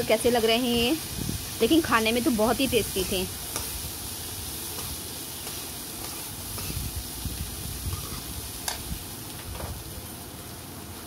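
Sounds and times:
chickpeas sizzling in a pan: 0.0s - 11.0s
spoon scraping and knocking pan: 7.9s - 8.9s.

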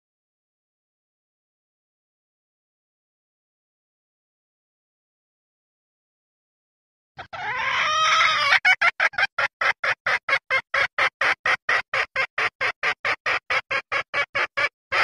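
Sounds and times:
hen calling and clucking: 7.2s - 15.0s.

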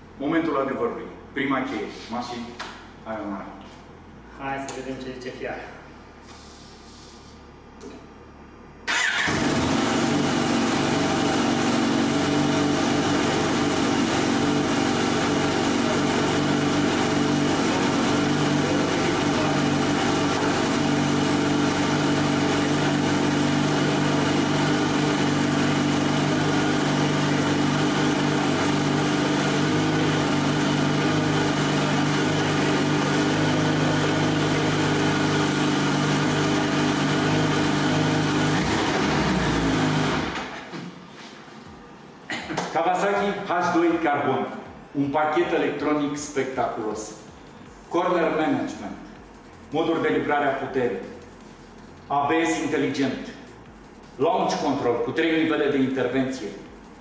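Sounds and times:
motorcycle engine starting and idling: 8.8s - 40.6s.

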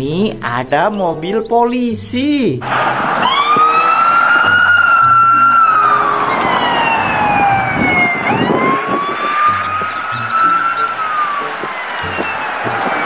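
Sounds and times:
electronic siren wailing: 2.7s - 13.0s.

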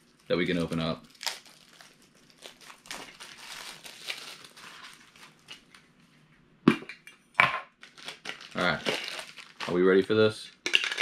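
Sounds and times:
plastic shrink wrap crinkling: 0.0s - 6.1s, 7.8s - 10.1s.

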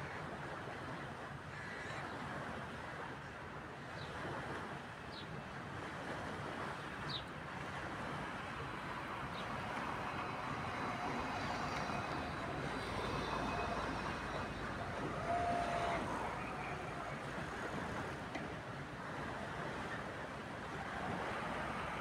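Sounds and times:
steady rushing noise: 7.3s - 22.0s.

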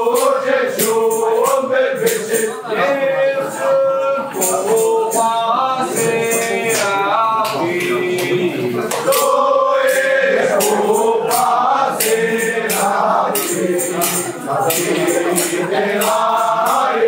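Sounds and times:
percussive strikes: 0.0s - 2.6s, 4.3s - 17.0s
men singing in long held notes: 0.0s - 17.0s.

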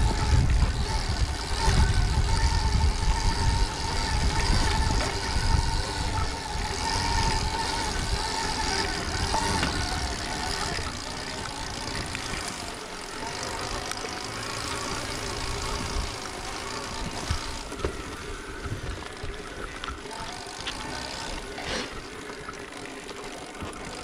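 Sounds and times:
chain and running-gear noise: 0.0s - 24.0s
electric motor whine: 0.0s - 24.0s
bike knocking over bumps: 6.8s - 12.6s, 17.1s - 19.3s.

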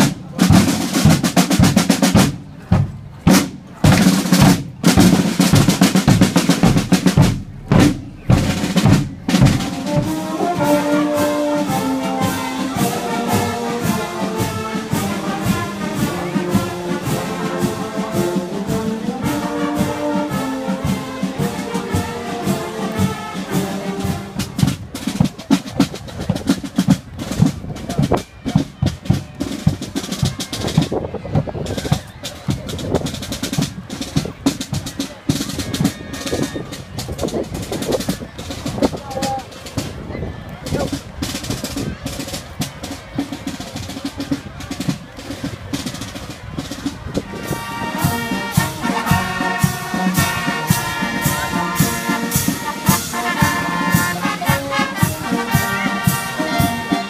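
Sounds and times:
snare and bass drums: 0.0s - 57.0s
brass melody: 3.4s - 24.6s, 47.3s - 57.0s.

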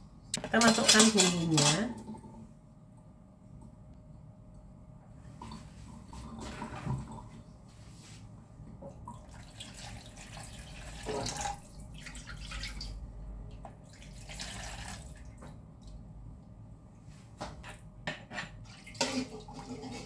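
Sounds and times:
water pouring into plastic tub: 9.2s - 13.0s, 13.9s - 15.4s.

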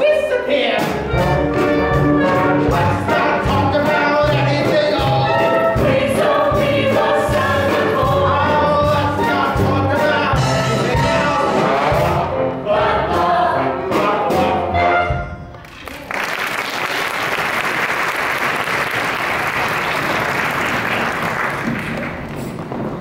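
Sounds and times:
cast singing with band: 1.9s - 15.3s
audience applause: 15.6s - 22.6s.

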